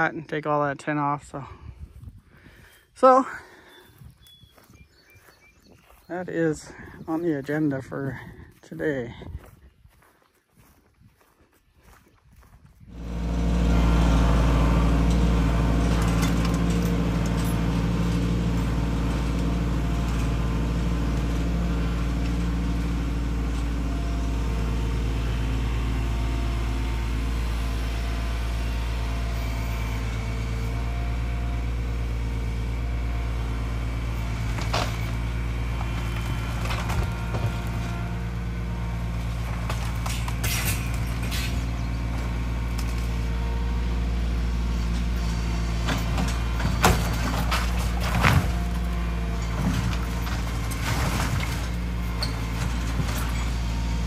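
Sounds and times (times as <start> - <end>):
tractor engine running: 0.0 - 54.0
knocks and cracks on wood and tin: 35.9 - 37.9, 39.4 - 41.6, 45.8 - 48.8.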